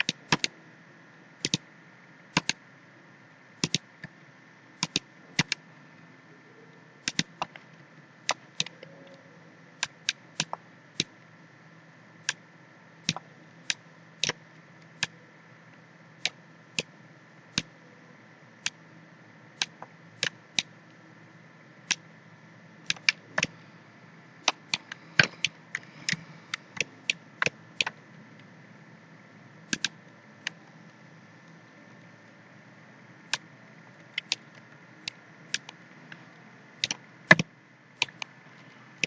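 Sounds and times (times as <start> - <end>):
computer mouse clicks: 0.0 - 0.6, 1.4 - 1.6, 2.3 - 2.6, 3.6 - 4.2, 4.8 - 5.6, 7.0 - 7.7, 8.3 - 9.2, 9.8 - 11.1, 13.0 - 15.2, 16.2 - 16.9, 19.6 - 20.7, 22.9 - 23.6, 24.4 - 28.5, 29.7 - 30.6, 33.3 - 36.2, 36.8 - 38.3
faint steady hum: 0.0 - 39.0.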